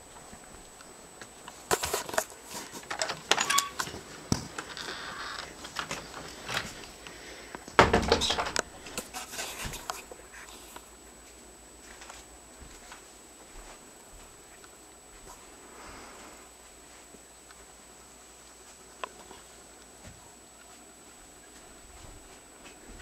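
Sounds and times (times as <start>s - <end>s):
wooden screen door opening: 2.8s - 4.0s, 7.8s - 8.6s
door creak: 2.9s - 4.0s, 4.6s - 6.0s, 7.8s - 8.6s
clattering thump: 7.8s - 8.6s.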